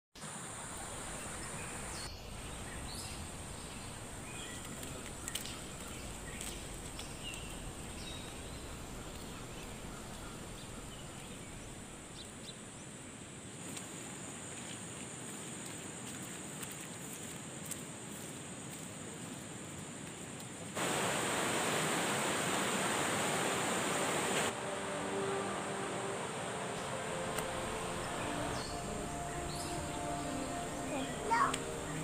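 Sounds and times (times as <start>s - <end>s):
low background hiss: 17.8s - 32.0s.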